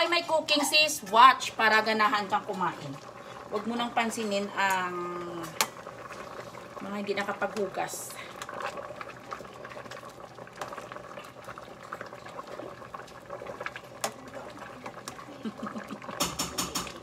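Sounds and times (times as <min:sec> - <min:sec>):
pot bubbling: 0:00.0 - 0:17.0.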